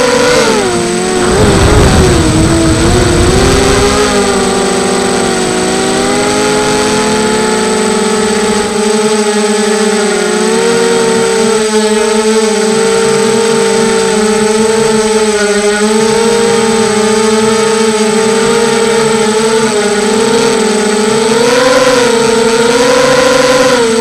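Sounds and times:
quadcopter propellers whining: 0:00.0 - 0:24.0
low rumble: 0:00.9 - 0:08.5.

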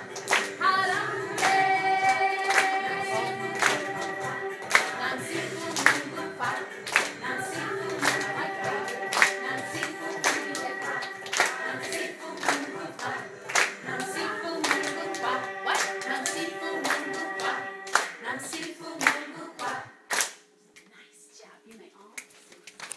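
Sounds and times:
children singing: 0:00.0 - 0:19.9
clapping: 0:00.1 - 0:00.6, 0:01.4 - 0:02.8, 0:03.6 - 0:04.1, 0:04.7 - 0:05.0, 0:05.8 - 0:06.0, 0:06.8 - 0:07.2, 0:07.9 - 0:08.3, 0:09.1 - 0:13.8, 0:14.6 - 0:20.4.

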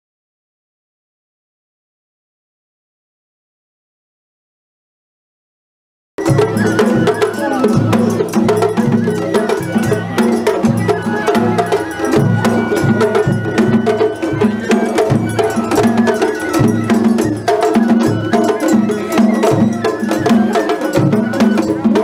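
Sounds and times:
high piping note: 0:06.2 - 0:22.0
taiko drums playing fast rhythm: 0:06.2 - 0:22.0.

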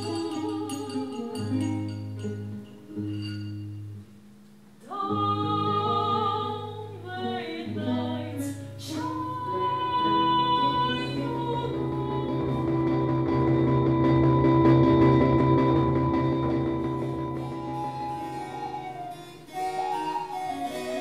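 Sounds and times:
person singing long notes: 0:04.8 - 0:13.2
low sustained music tones: 0:05.0 - 0:21.0.

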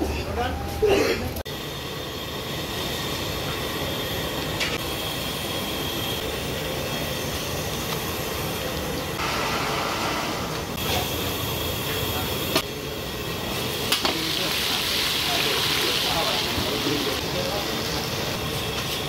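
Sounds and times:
gas burner roaring: 0:00.9 - 0:19.0
onion sizzling in hot oil: 0:13.9 - 0:18.0.

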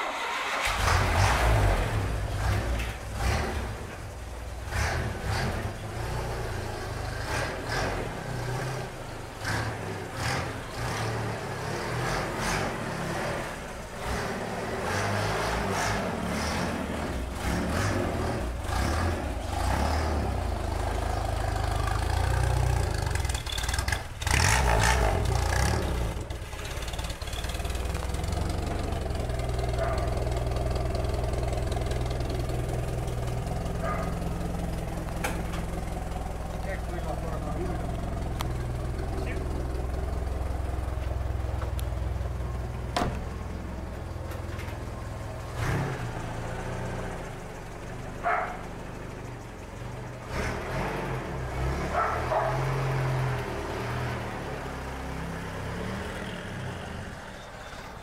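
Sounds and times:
car engine running: 0:13.0 - 0:53.0.

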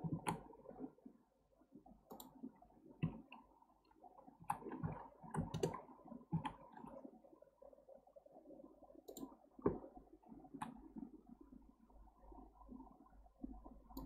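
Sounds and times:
computer mouse clicks: 0:00.0 - 0:00.5, 0:02.1 - 0:02.4, 0:04.5 - 0:06.6, 0:09.0 - 0:09.8
keyboard keys clicking: 0:05.3 - 0:05.8.

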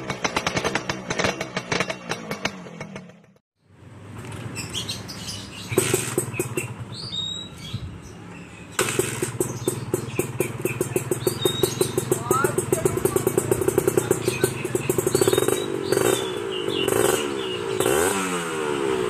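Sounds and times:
two-stroke motorcycle idling: 0:00.0 - 0:03.4, 0:05.7 - 0:07.2, 0:08.8 - 0:19.0
bird chirping: 0:03.6 - 0:18.2.

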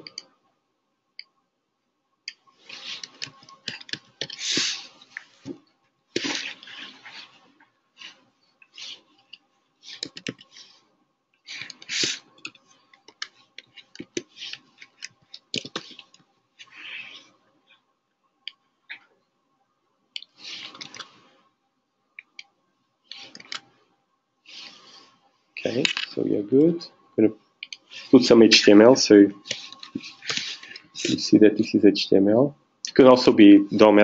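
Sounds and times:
short hissing noises: 0:04.3 - 0:05.5, 0:11.4 - 0:12.4, 0:24.4 - 0:25.8, 0:27.8 - 0:28.3, 0:29.4 - 0:31.3.

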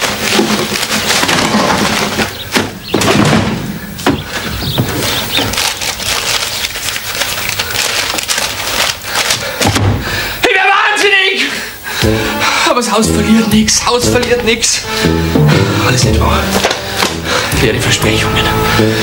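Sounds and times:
knocks of boxes and wood: 0:00.0 - 0:10.2
paper crinkling and rustling: 0:00.0 - 0:10.3.

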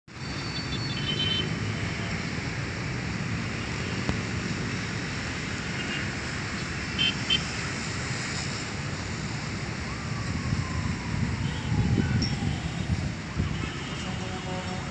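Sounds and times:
distant traffic: 0:00.1 - 0:14.9
wind on microphone: 0:09.9 - 0:13.7.

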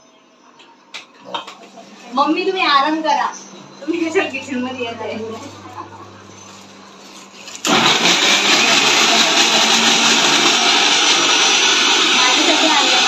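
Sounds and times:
mixer grinder running: 0:03.5 - 0:13.0.

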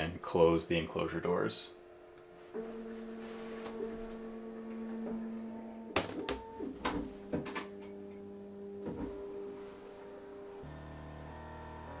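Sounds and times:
printer motors humming: 0:02.0 - 0:08.1, 0:08.7 - 0:12.0.

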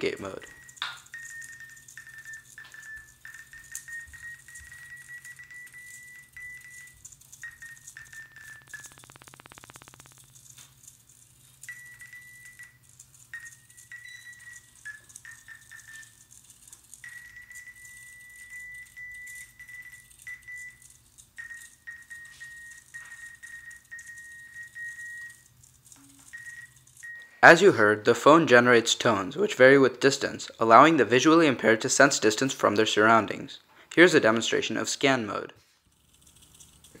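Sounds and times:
fast electronic buzz: 0:00.0 - 0:27.5
high beep tone: 0:00.5 - 0:10.2, 0:13.4 - 0:16.1, 0:21.4 - 0:25.4, 0:26.0 - 0:27.4.

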